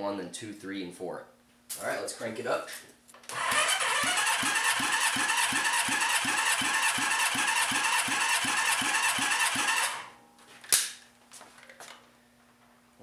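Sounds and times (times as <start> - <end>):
engine cranking without firing: 3.3 - 10.1.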